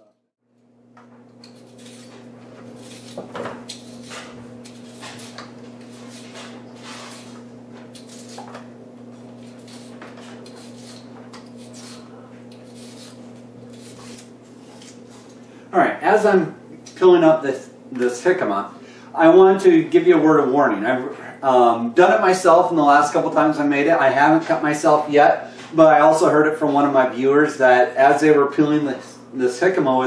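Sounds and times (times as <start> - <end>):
steady low hum: 0.0 - 30.0
vegetable peeler scraping: 1.3 - 15.4.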